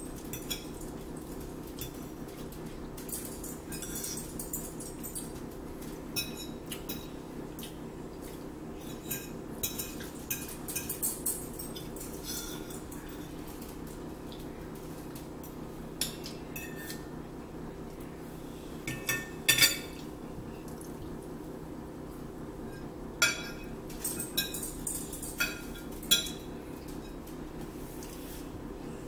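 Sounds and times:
steady low hum: 0.0 - 29.0
forks clinking on plates: 0.2 - 1.0, 3.0 - 5.4, 6.1 - 7.1, 8.8 - 13.7, 18.9 - 20.0, 23.2 - 27.1.

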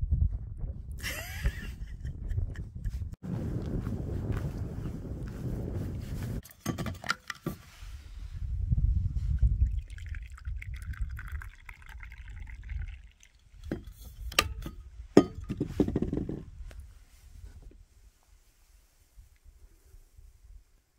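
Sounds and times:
coffee pouring into cup: 9.5 - 13.9.

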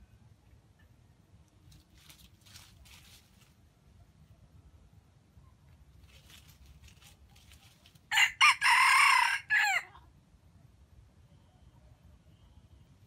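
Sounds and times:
rooster crowing: 8.1 - 9.9.

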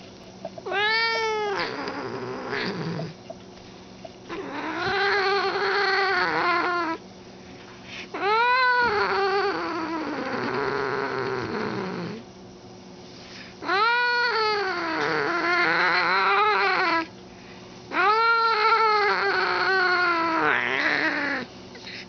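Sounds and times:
cat yowling: 0.6 - 3.2, 4.3 - 7.0, 8.2 - 11.4, 13.6 - 17.1, 17.9 - 21.5.

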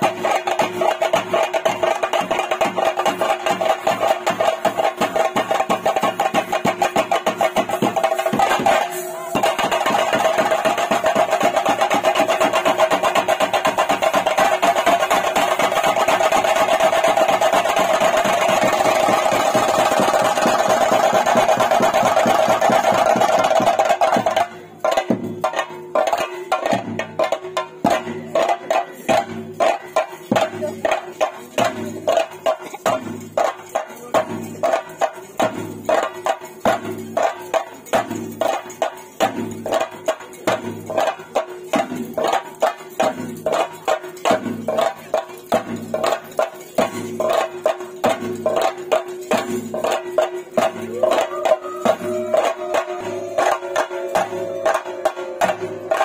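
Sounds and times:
drumming on chenda drums: 0.0 - 56.0
held tone: 50.9 - 56.0.

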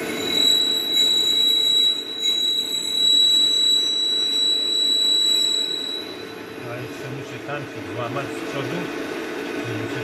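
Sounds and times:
high-pitched cutting squeal: 0.0 - 7.2
lathe running: 0.0 - 10.0.

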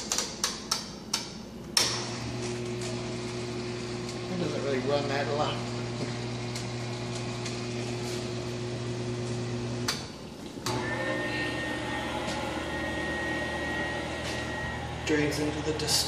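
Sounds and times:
dishwasher motor hum: 2.0 - 16.0
thin high whine: 10.7 - 16.0.

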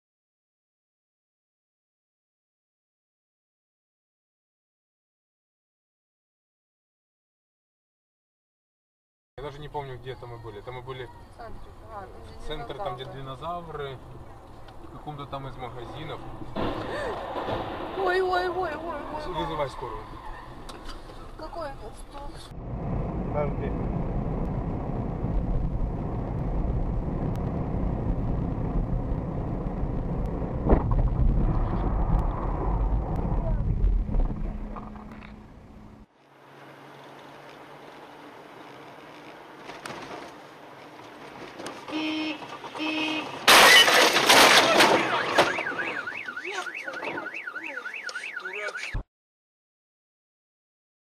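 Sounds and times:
car engine and tyres rumbling: 9.4 - 49.0
car collision crash: 16.5 - 19.0, 42.6 - 46.2
loud thump: 16.6 - 18.2, 30.6 - 35.5
car horn blasts: 41.9 - 43.5
car alarm warbling: 44.7 - 49.0.

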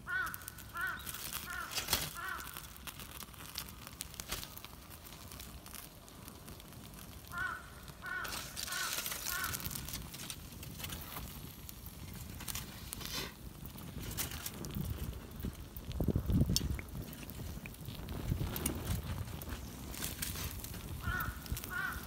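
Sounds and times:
crow cawing: 0.0 - 2.7, 7.3 - 9.8, 21.0 - 22.0
light crackling and crinkling: 0.0 - 22.0.

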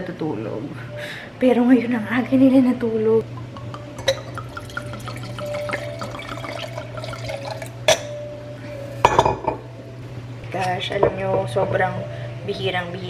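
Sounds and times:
wine pouring into glass: 3.4 - 8.0
glass clink: 3.5 - 8.2, 9.0 - 9.7.

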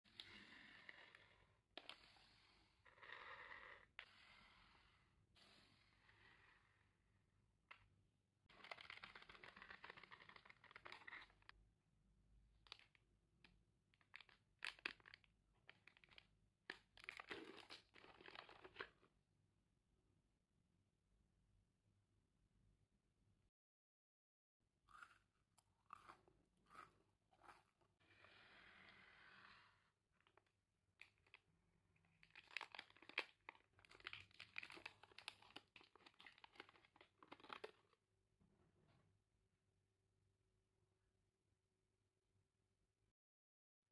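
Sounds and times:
plastic wrapper crinkling: 8.5 - 11.5, 32.1 - 37.9
wrapper tearing open: 32.2 - 37.9.

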